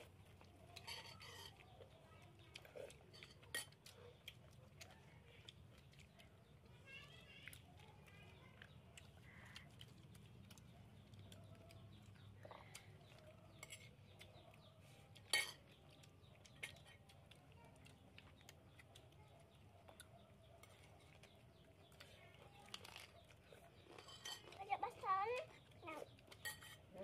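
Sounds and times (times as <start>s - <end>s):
spoons clinking on plates: 0.7s - 1.6s, 3.1s - 3.8s, 15.2s - 15.7s, 23.9s - 24.6s, 26.3s - 26.9s.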